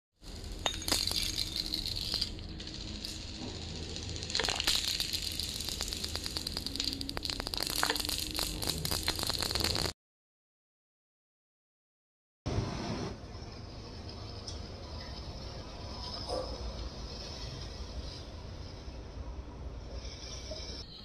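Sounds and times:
marbles clicking together: 0.2 - 10.0
marbles rolling on stone floor: 0.2 - 10.0.

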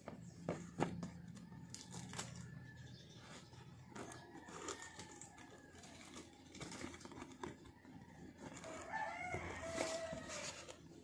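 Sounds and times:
packaging rustling and crinkling: 8.4 - 11.0.

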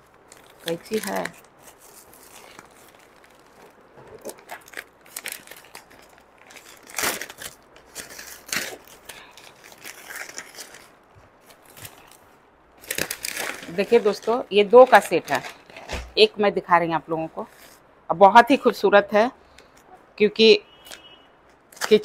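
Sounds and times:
packaging crinkling and rustling: 0.0 - 16.3, 21.7 - 22.0.

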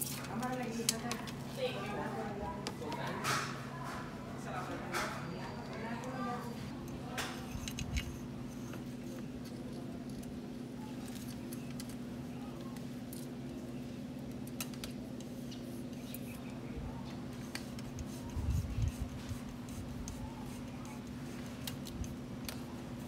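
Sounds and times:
small metal parts clicking: 6.8 - 8.2.

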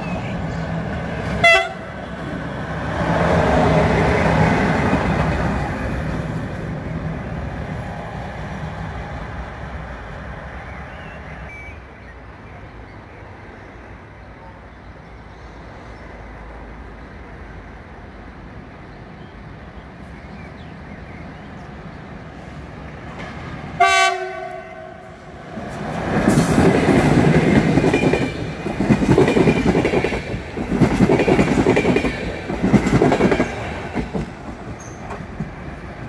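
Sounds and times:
train wheels rumbling: 0.0 - 11.5, 19.6 - 36.0
locomotive horn blast: 1.4 - 2.0, 23.8 - 25.2.

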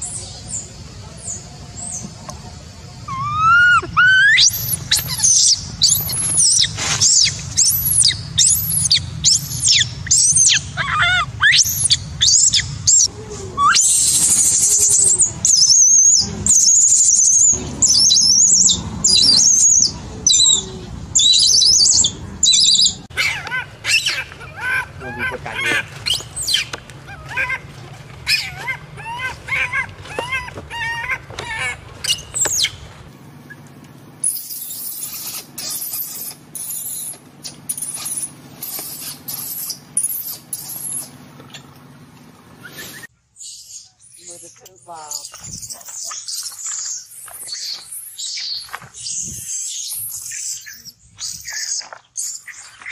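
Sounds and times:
baby monkey screaming: 3.0 - 32.9, 34.2 - 41.7.

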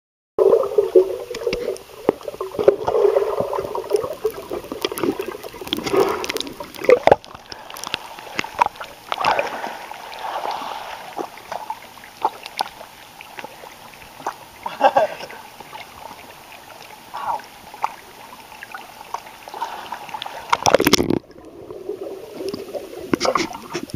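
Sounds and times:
muffled underwater bubbling: 0.4 - 23.9.

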